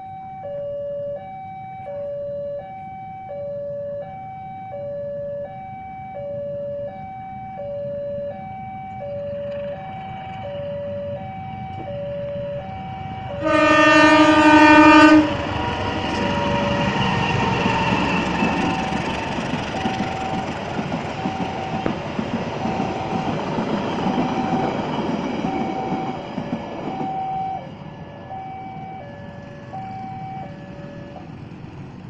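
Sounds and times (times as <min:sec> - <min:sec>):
level crossing two-tone alarm: 0:00.0 - 0:31.3
train rumbling: 0:06.5 - 0:32.0
train horn blast: 0:13.3 - 0:18.9.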